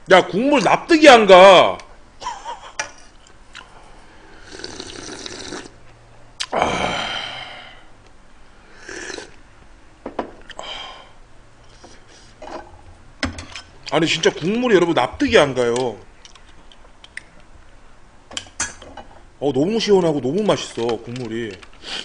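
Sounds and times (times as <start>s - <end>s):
man slurping broth: 4.3s - 5.8s, 8.7s - 9.4s
breathy exhales: 6.5s - 8.0s, 10.5s - 12.4s.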